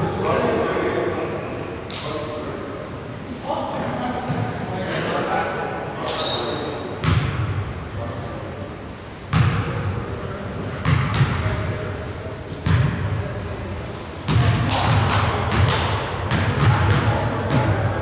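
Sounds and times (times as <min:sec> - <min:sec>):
sneakers squeaking on court: 0:00.0 - 0:02.4, 0:03.9 - 0:08.2, 0:08.8 - 0:13.1, 0:13.8 - 0:18.0
basketball bouncing on wooden floor: 0:07.0 - 0:07.4, 0:09.3 - 0:09.6, 0:10.8 - 0:11.4, 0:14.3 - 0:17.8.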